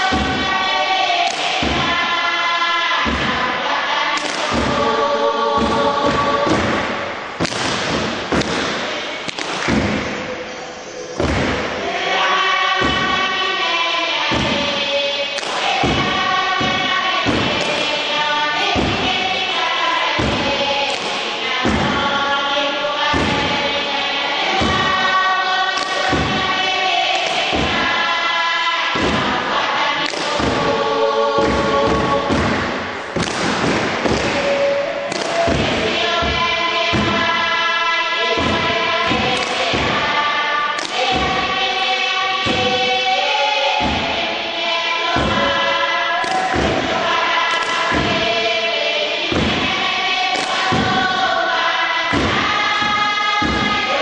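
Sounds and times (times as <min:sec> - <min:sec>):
group chanting in harmony: 0:00.0 - 0:54.0
hands beating wooden box: 0:00.1 - 0:00.5, 0:03.0 - 0:03.5, 0:05.6 - 0:10.2, 0:15.4 - 0:18.0, 0:18.7 - 0:19.3, 0:20.2 - 0:22.1, 0:23.1 - 0:23.6, 0:28.9 - 0:29.4, 0:31.4 - 0:34.5, 0:35.1 - 0:37.4, 0:38.4 - 0:40.1, 0:40.8 - 0:41.6, 0:42.4 - 0:42.9, 0:45.2 - 0:45.6, 0:46.2 - 0:48.3, 0:49.3 - 0:49.8, 0:50.4 - 0:51.2, 0:52.1 - 0:53.9.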